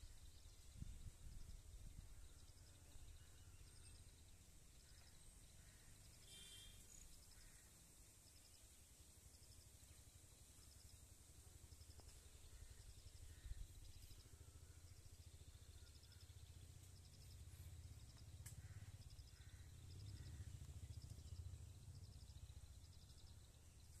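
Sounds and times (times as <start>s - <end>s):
wind rumble on microphone: 0.0s - 3.2s
small high-pitched chirps: 6.2s - 7.6s.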